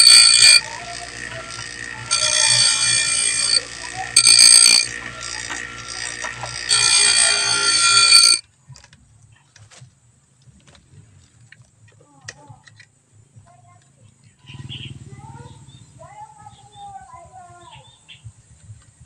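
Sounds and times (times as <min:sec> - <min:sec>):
grinder motor humming: 0:00.0 - 0:08.4
grinder wheel grinding metal: 0:00.0 - 0:08.4.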